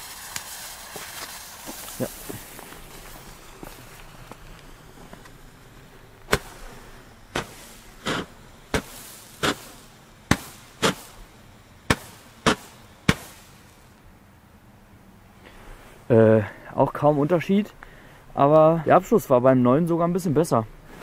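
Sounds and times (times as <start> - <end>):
roman candle pops: 6.2 - 6.6.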